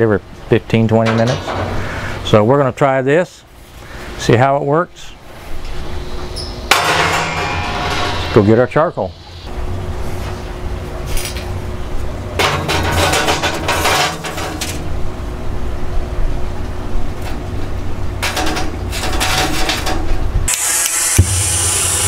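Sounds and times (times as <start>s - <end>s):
charcoal clattering in metal basket: 12.4s - 14.9s.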